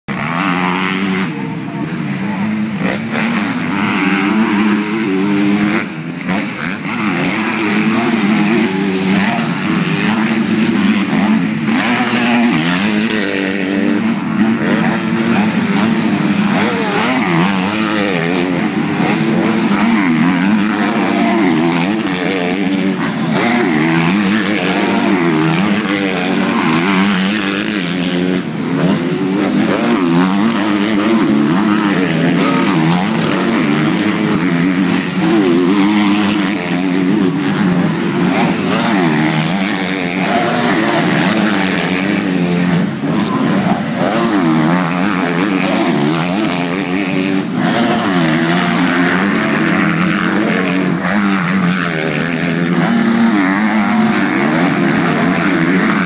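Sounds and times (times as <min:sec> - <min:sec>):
motocross bikes revving: 0:00.0 - 0:56.0.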